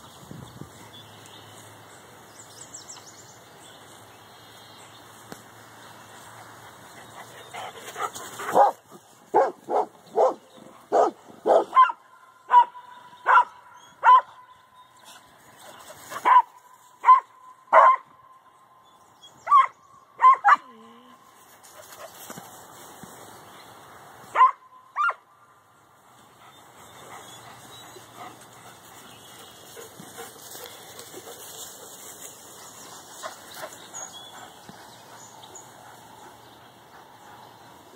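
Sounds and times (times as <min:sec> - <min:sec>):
dog barking: 0:08.5 - 0:14.4, 0:16.2 - 0:18.1, 0:19.5 - 0:20.7, 0:24.4 - 0:25.2.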